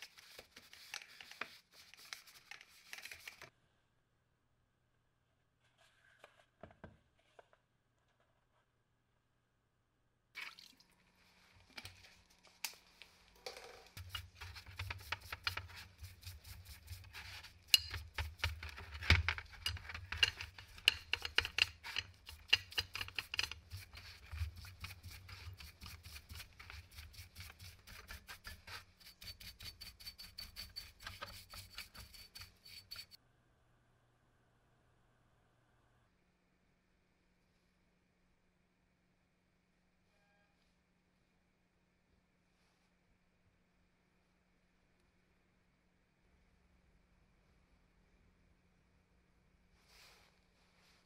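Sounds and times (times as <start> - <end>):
brush scrubbing metal parts: 13.9 - 33.2.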